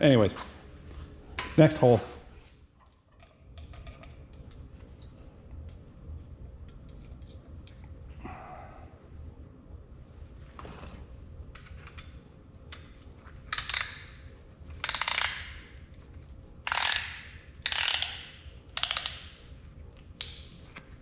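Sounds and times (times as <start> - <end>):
rapid ratchet clicks: 14.8 - 15.6, 16.6 - 19.4.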